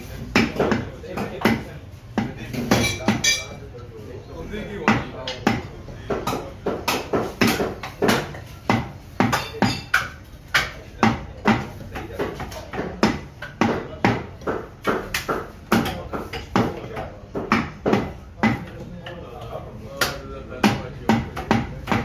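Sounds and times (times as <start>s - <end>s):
cleaver chopping on wooden block: 4.9s - 18.7s, 20.0s - 22.0s.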